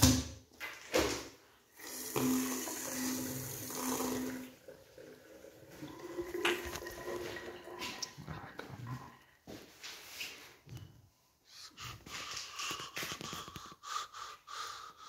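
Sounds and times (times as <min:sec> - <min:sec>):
water running from a tap: 0:01.8 - 0:08.2.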